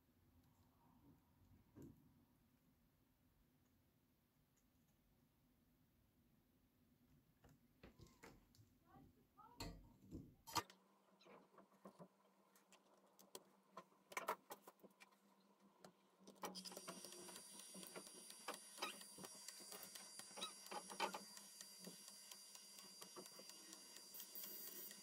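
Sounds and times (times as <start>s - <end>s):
steady hiss with high whine: 16.5s - 25.0s.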